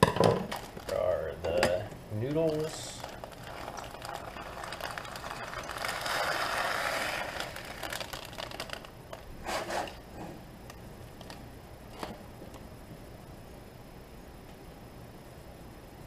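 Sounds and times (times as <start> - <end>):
small clicks and crinkles: 0.5 - 1.1, 2.2 - 9.3, 10.7 - 12.7
dry pasta pouring into pot: 2.5 - 8.9.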